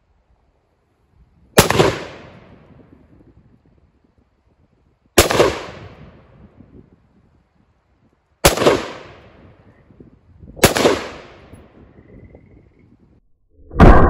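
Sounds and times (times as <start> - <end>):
rifle shots with echo: 1.6 - 2.6, 5.2 - 6.2, 8.4 - 9.5, 10.6 - 11.7.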